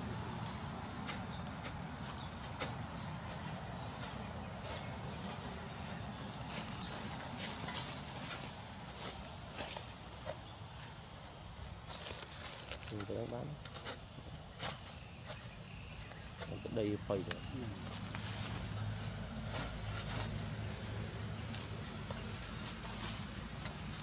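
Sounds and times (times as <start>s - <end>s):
high-pitched insect drone: 0.0s - 24.0s.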